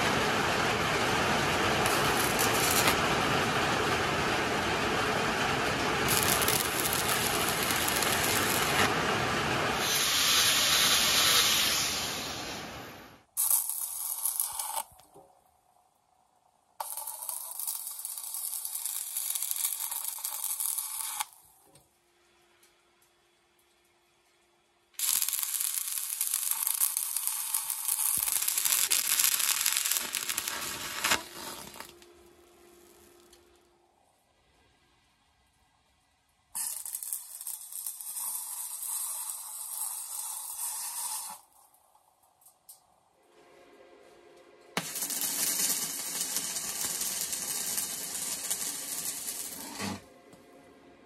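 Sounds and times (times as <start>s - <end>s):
heavy rain on metal roof: 0.0s - 6.1s, 8.6s - 9.8s
welding arc crackling hiss: 0.0s - 15.2s, 16.8s - 21.6s, 25.0s - 33.6s, 36.6s - 41.7s, 44.8s - 50.1s.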